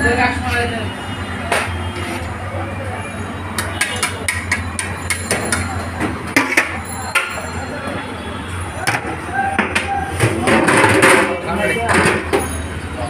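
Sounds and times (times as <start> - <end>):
metal spoon clinking on pot: 3.8 - 7.6.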